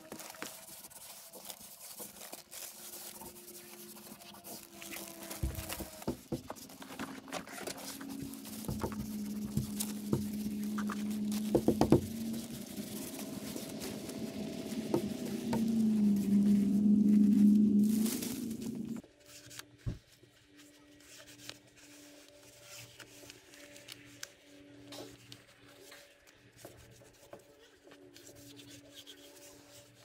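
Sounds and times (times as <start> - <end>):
backing paper rustling: 0.0 - 20.2
hands rubbing membrane: 0.1 - 19.0
steady low hum: 6.4 - 19.0.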